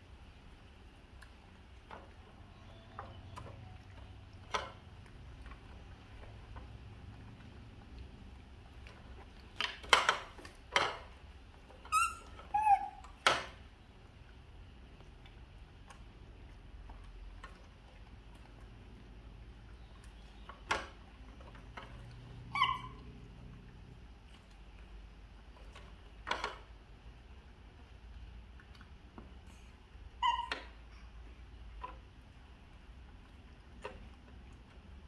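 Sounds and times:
baby monkeys squeaky calls: 0:11.9 - 0:13.1, 0:22.5 - 0:23.0, 0:30.2 - 0:30.6.

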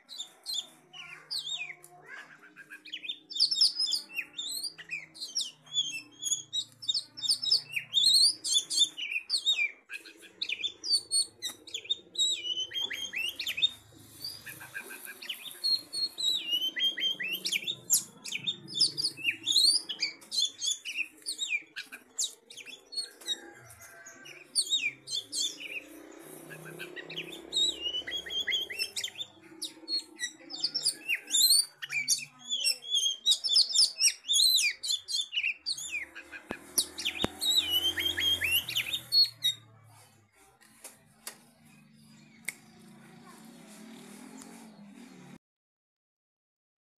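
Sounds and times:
bird singing chirps and whistles: 0:02.7 - 0:25.9, 0:26.5 - 0:36.2, 0:36.8 - 0:39.6.

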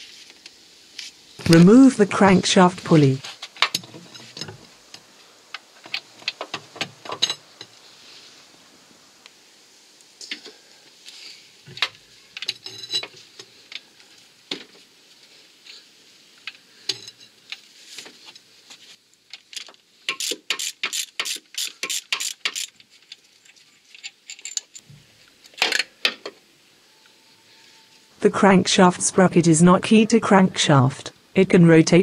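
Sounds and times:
ratchet wrench clicking: 0:20.1 - 0:22.8.

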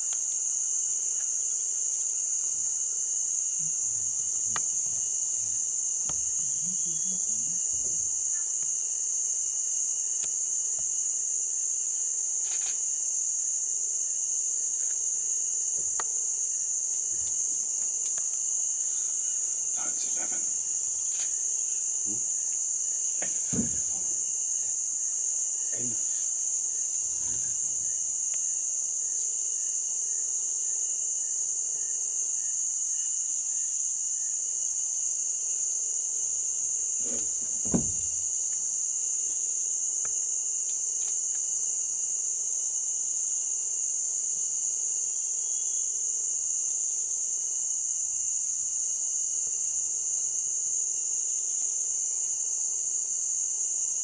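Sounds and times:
insects chirping: 0:00.0 - 0:54.0
low knocks: 0:23.2 - 0:24.1, 0:37.0 - 0:38.2.

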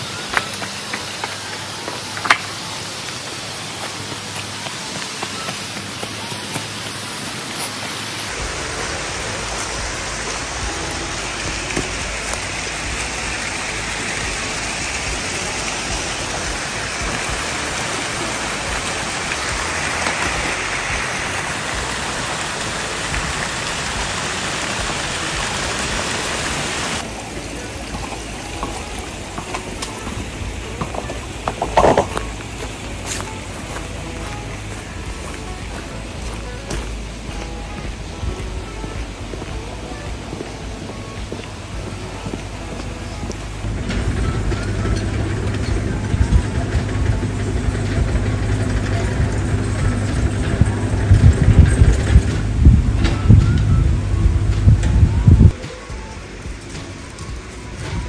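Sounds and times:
water rushing over a dam: 0:00.0 - 0:44.4.

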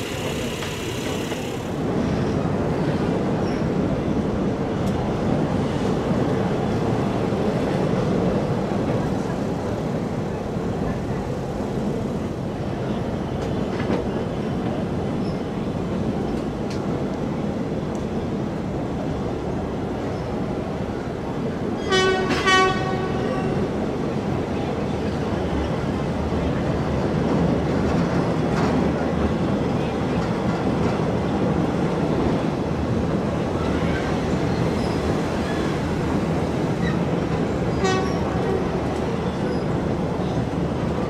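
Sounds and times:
train rumble and rattle: 0:00.0 - 0:41.0
train horn blasts: 0:21.9 - 0:23.6, 0:37.7 - 0:38.8.

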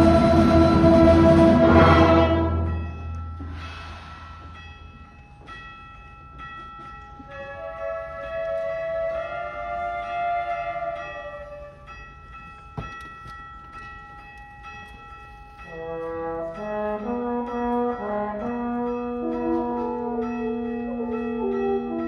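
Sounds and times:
orchestra playing: 0:00.0 - 0:03.5, 0:07.4 - 0:11.7, 0:15.7 - 0:22.0.

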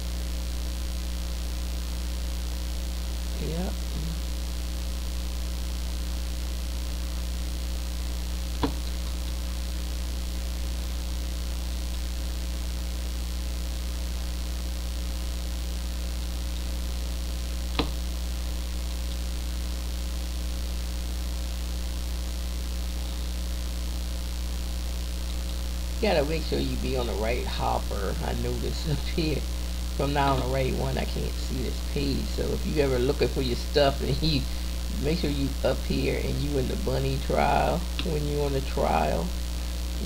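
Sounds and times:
electrical mains hum: 0:00.0 - 0:40.0
faint steady tones: 0:24.6 - 0:40.0.

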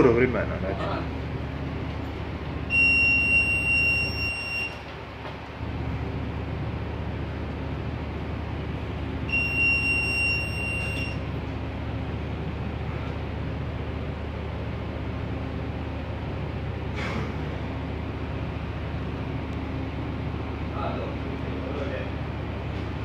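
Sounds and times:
low drone of ship engines: 0:00.0 - 0:23.0
electronic alarm buzzer: 0:02.7 - 0:04.8, 0:09.3 - 0:11.2.

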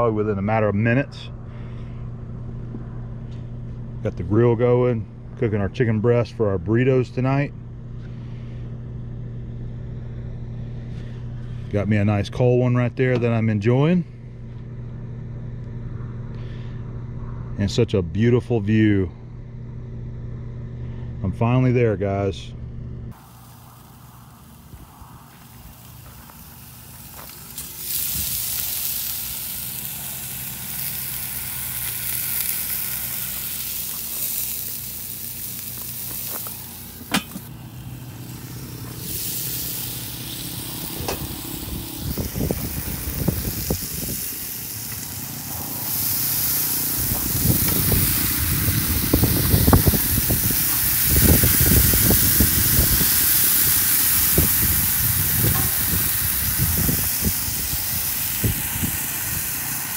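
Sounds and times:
low rumbling: 0:00.0 - 0:59.6
chicken sizzling on grill: 0:23.1 - 0:59.9.

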